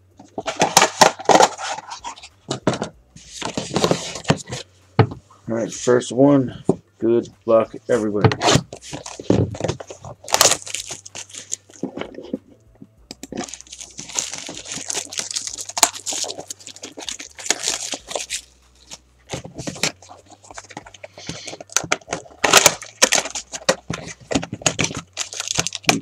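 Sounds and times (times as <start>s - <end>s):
plastic shrink-wrap crackling: 9.0s - 11.8s, 13.3s - 18.4s, 19.6s - 26.0s.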